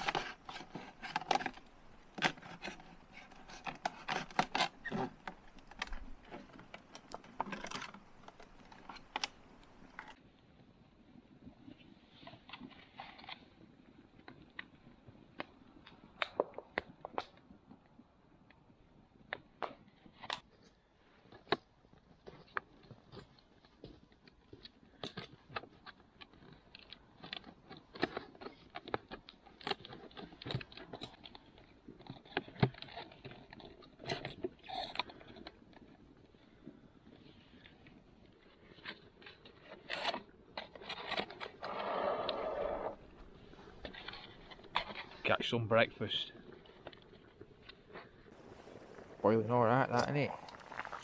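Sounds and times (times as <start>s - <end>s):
cord scraping: 0.0s - 10.2s, 38.4s - 45.3s, 46.4s - 51.0s
plastic bottle crinkling: 48.4s - 51.0s.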